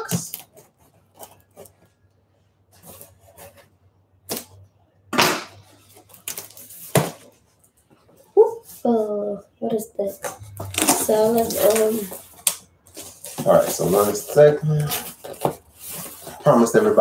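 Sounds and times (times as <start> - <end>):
cardboard scraping and rustling: 2.7 - 3.8, 10.7 - 17.0.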